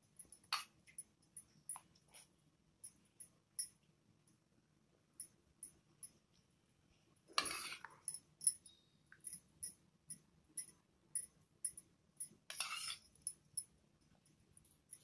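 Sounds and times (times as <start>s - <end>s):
spoon scraping: 7.3s - 9.5s, 12.2s - 15.0s
spoon clinking on steel plate: 7.4s - 9.8s, 10.6s - 13.7s.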